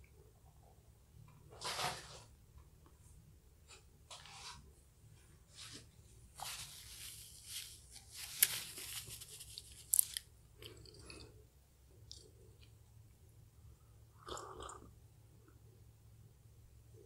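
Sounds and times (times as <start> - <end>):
paper tissue rustling: 5.5 - 10.2.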